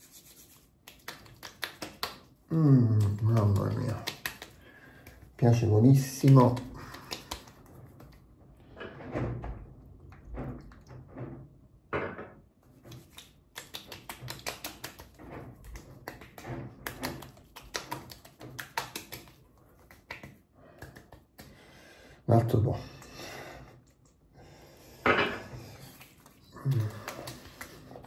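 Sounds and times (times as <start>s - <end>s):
hands patting face: 0.0s - 8.2s, 12.7s - 21.6s, 25.6s - 28.0s
soft rubbing on skin: 0.0s - 8.3s, 12.6s - 21.5s, 25.6s - 28.0s.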